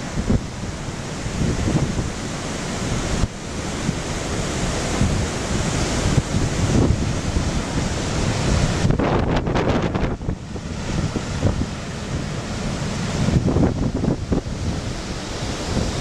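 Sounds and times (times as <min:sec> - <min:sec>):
gusty wind buffeting microphone: 0:00.0 - 0:16.0
storm surf breaking on rocks: 0:00.0 - 0:16.0.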